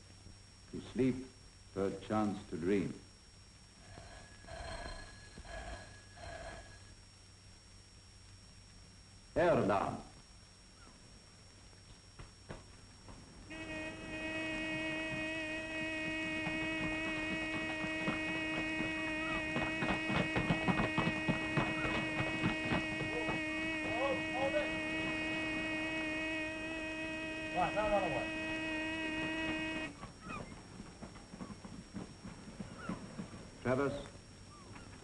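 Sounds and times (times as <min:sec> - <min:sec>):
air-raid alarm buzzer: 0:03.8 - 0:07.0, 0:13.4 - 0:30.2.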